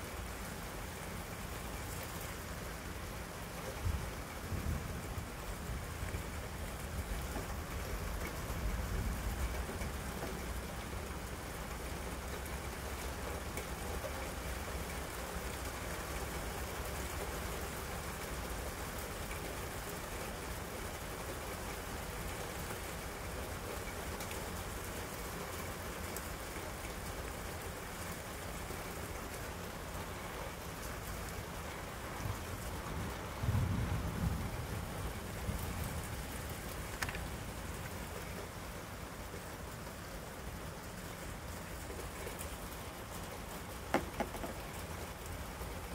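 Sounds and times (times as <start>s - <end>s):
steady rain: 0.0s - 45.9s
low thunder rumble: 32.2s - 37.6s.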